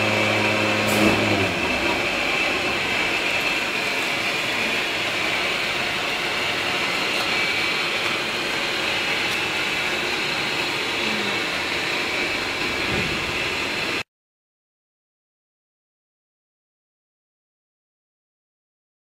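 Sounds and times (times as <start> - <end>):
vacuum blower whine and rush: 0.0 - 14.0.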